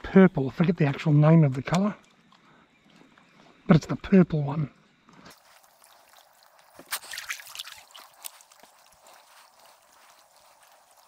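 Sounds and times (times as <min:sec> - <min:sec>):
small splashes and ticks: 0:00.6 - 0:03.7, 0:04.8 - 0:11.0
water trickling and dripping: 0:00.8 - 0:11.0.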